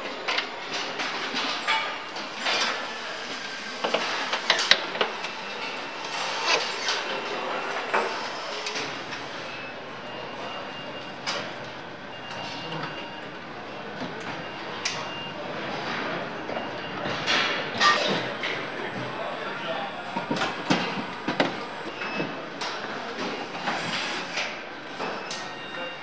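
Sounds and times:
machinery humming: 0.1 - 10.5.

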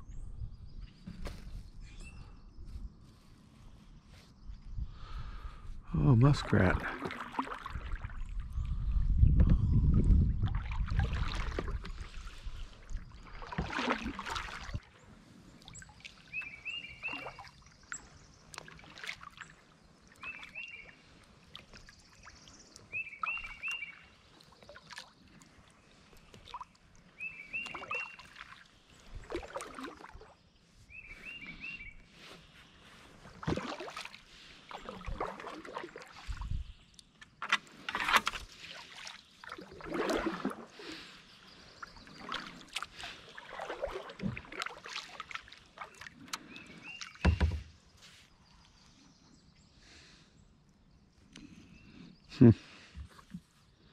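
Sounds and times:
bird chirping: 0.0 - 4.8, 15.7 - 18.6, 19.4 - 21.1, 21.8 - 24.9, 27.2 - 28.4
paddle swishing through water: 6.4 - 49.1.

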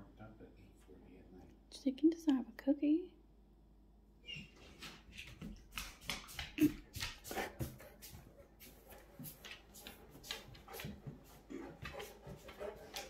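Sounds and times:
dog claws clicking on hardwood floor: 4.8 - 13.0.

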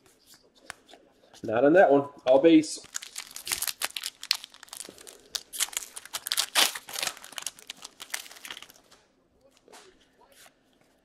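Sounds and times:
wrapper crinkling and tearing: 2.8 - 9.0.

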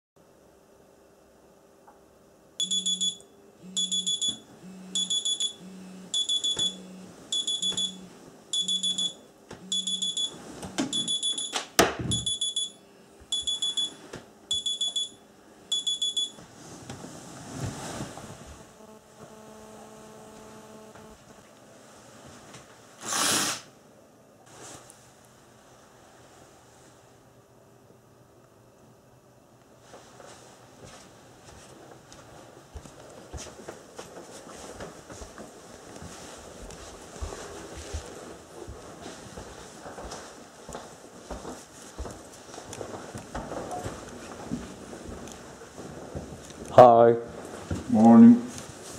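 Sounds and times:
low buzz: 2.6 - 11.3, 18.0 - 21.5
phone alarm beeping: 2.6 - 16.4
bedding rustling: 16.4 - 18.7, 29.8 - 47.9.

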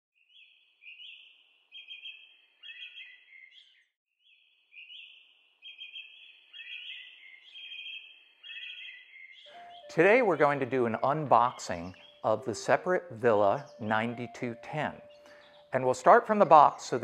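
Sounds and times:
birds chirping and trilling: 0.2 - 17.0
faint outdoor hiss: 9.6 - 17.0.

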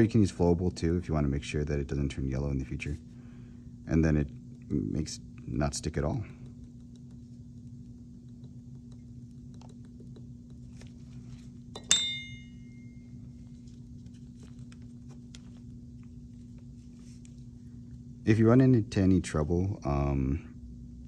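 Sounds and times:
steady low hum: 0.0 - 21.0
metal instruments clinking: 11.8 - 13.0.

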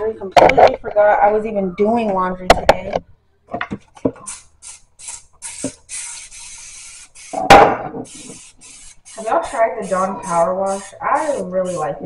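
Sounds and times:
spray bottle squirting: 4.0 - 12.0.

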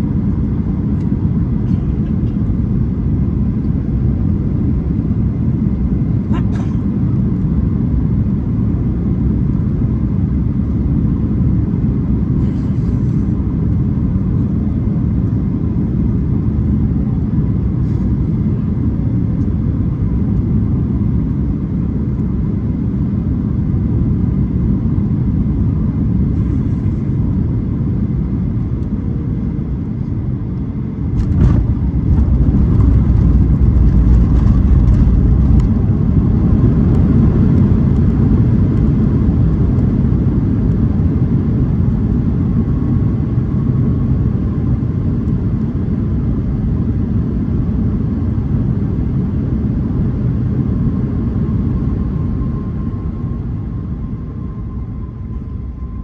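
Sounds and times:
airliner cabin engine rumble: 0.0 - 56.0
wheels rolling on runway: 31.2 - 35.8.

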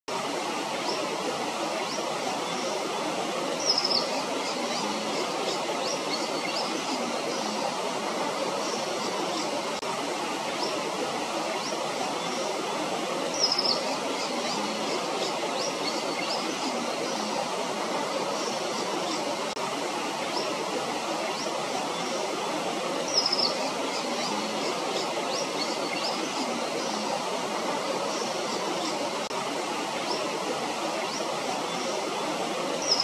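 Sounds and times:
small birds chirping: 3.5 - 7.6, 13.2 - 17.4, 23.0 - 27.1, 32.7 - 33.0.

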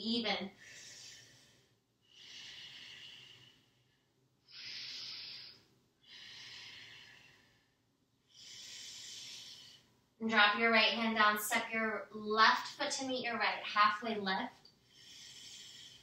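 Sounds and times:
woman breathing slowly: 0.5 - 10.1, 14.6 - 16.0.

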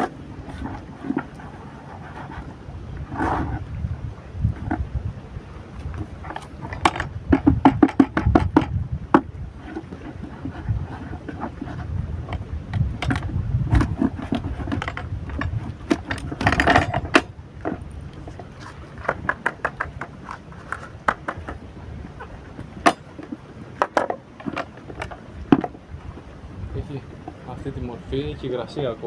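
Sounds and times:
rustling scrape through riddle: 0.0 - 3.6
plastic bucket knocks and clicks: 5.9 - 10.4, 11.3 - 17.8, 19.0 - 21.6, 22.8 - 25.8.

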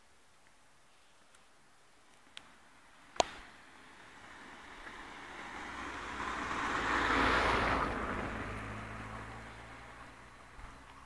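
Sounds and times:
vehicle passing by: 3.4 - 11.0.

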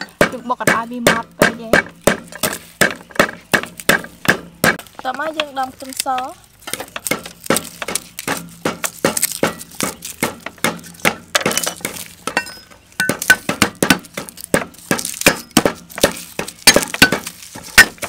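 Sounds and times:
cleaver knocking on wooden block: 0.0 - 5.5.

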